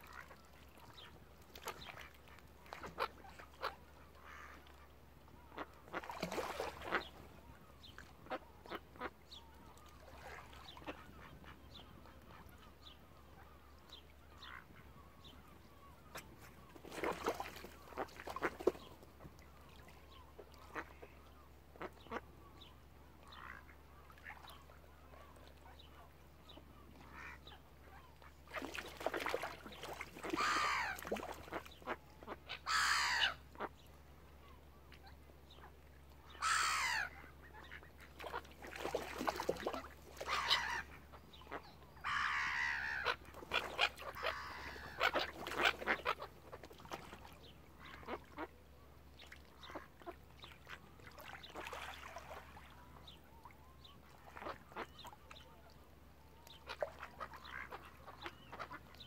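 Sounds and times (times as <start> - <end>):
gulls calling: 26.9 - 33.7, 36.3 - 48.5
ducks calling: 27.0 - 33.7, 36.3 - 48.5, 56.5 - 58.9.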